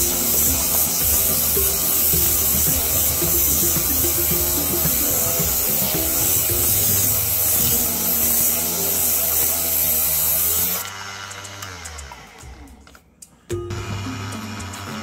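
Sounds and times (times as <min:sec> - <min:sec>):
lathe motor hum: 0:00.0 - 0:11.6
sandpaper hissing on spinning wood: 0:00.0 - 0:11.6.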